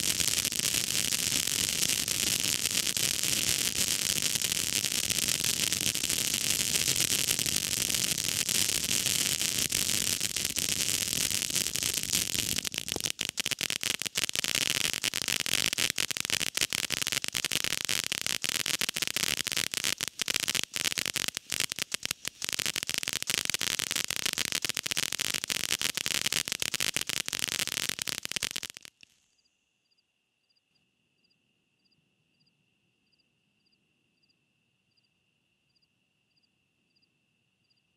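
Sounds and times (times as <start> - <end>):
firework fountain hissing and crackling: 0.0 - 29.0.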